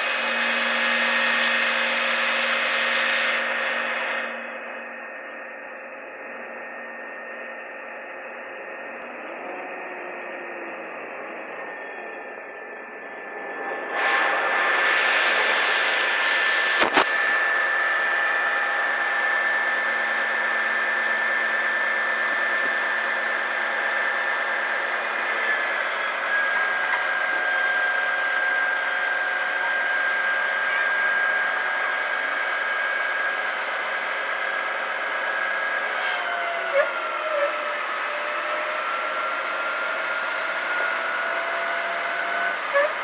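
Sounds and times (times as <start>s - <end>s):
diesel engine running: 0.0s - 43.0s
hydraulic hoist whine: 0.0s - 43.0s.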